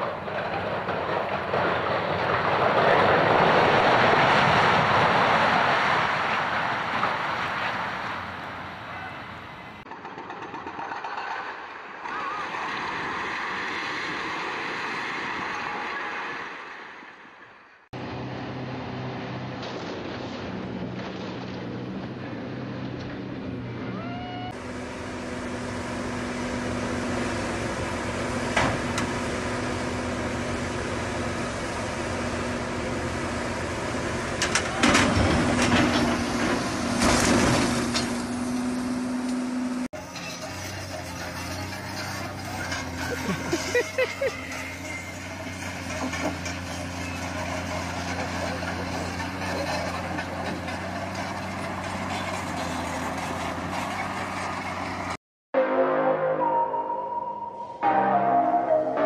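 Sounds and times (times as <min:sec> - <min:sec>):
falling concrete and rubble: 0:00.0 - 0:07.7, 0:09.9 - 0:16.8, 0:40.2 - 0:54.2
excavator diesel engine running: 0:18.0 - 0:55.2
loud crashing and clattering: 0:34.4 - 0:38.4.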